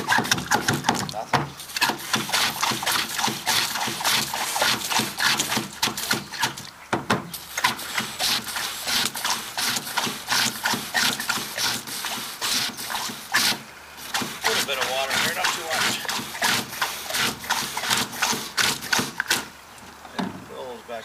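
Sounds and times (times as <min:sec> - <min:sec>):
hand pump strokes: 0:00.0 - 0:06.7, 0:07.3 - 0:19.5.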